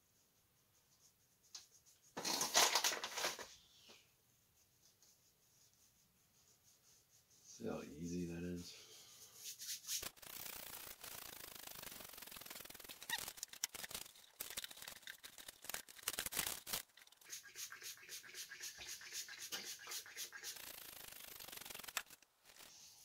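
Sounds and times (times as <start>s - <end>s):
crinkling paper: 2.2s - 3.6s, 10.0s - 17.3s, 20.4s - 23.0s
florets clicking and knocking: 9.9s - 22.8s.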